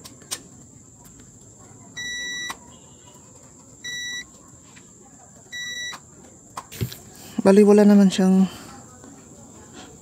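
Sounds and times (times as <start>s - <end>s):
multimeter continuity beep: 2.0s - 2.7s, 3.8s - 4.3s, 5.5s - 6.0s.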